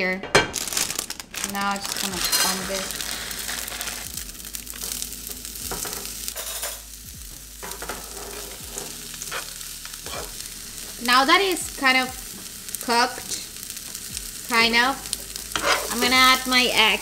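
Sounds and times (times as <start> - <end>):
food sizzling in a frying pan: 0.4 - 17.0
spoon scraping and stirring: 7.8 - 10.4, 15.5 - 16.1.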